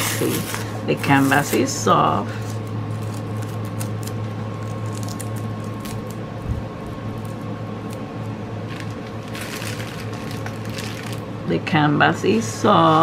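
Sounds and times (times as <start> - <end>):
small crackles: 2.5 - 6.2, 7.1 - 11.3.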